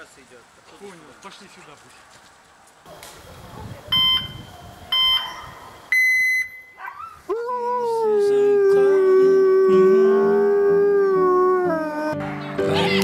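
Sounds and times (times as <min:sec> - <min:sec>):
short electronic beeps: 0:03.9 - 0:04.4, 0:05.9 - 0:06.8
husky howling: 0:06.8 - 0:12.2.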